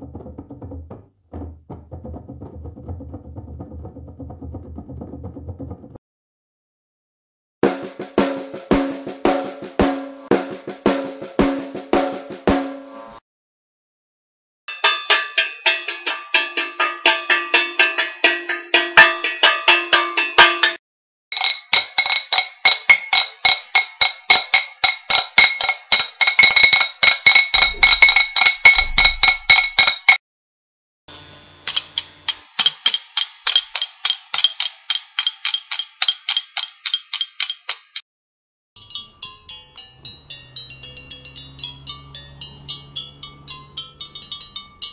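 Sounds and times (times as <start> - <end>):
metallic strikes with ringing tone: 14.7 - 20.8, 21.4 - 30.2, 38.8 - 44.9.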